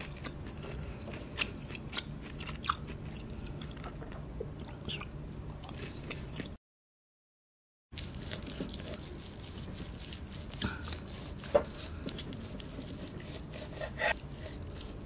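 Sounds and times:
knife cutting meat on board: 8.1s - 15.0s.

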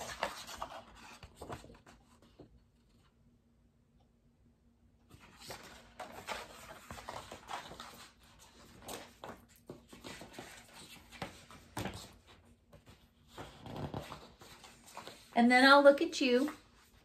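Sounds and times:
paper pages rustling: 0.0s - 3.2s, 5.1s - 15.4s.

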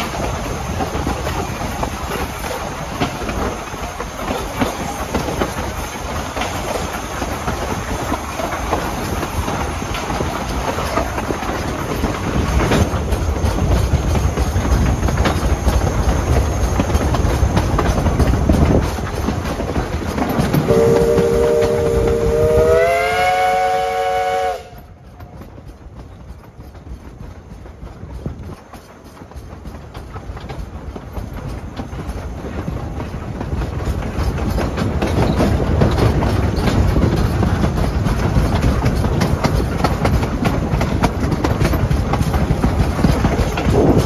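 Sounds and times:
rolling rail noise and wheel clicks: 0.0s - 44.0s
steam whistle chord: 20.7s - 25.0s.

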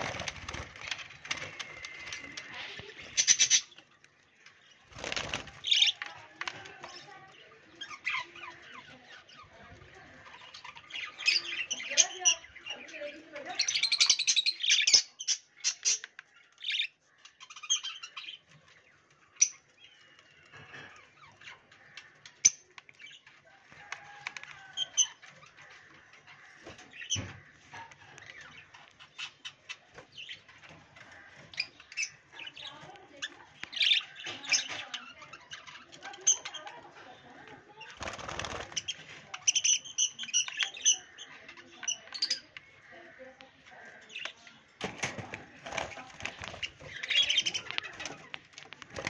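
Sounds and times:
wing flapping: 0.0s - 2.7s, 4.9s - 5.8s, 44.8s - 49.0s
budgerigars chirping: 0.0s - 3.8s, 46.0s - 49.0s.

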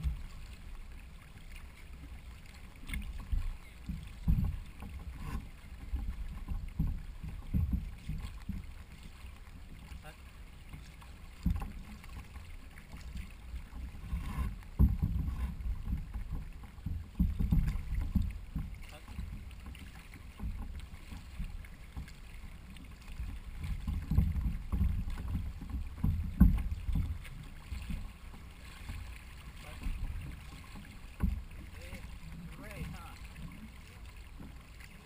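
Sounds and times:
water sloshing against hull: 0.0s - 35.0s
sharp knocks on hull: 2.8s - 9.1s, 10.8s - 22.2s, 23.0s - 34.6s.

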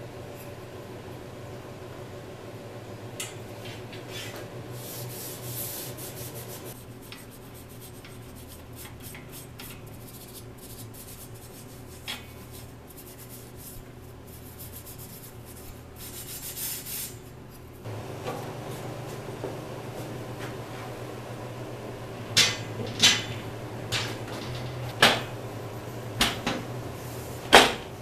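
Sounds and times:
low hum: 17.9s - 28.0s.

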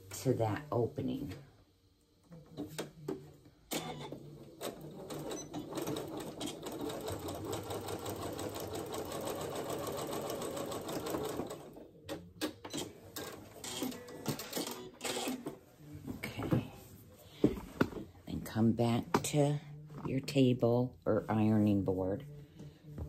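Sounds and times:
sewing machine clattering: 4.6s - 11.7s.

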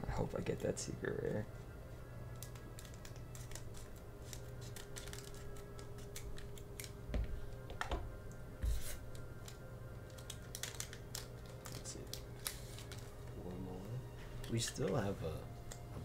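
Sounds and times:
foil wrapper crackling: 2.3s - 6.9s, 9.0s - 13.4s
scissors snipping foil: 2.3s - 7.0s, 8.8s - 13.1s.

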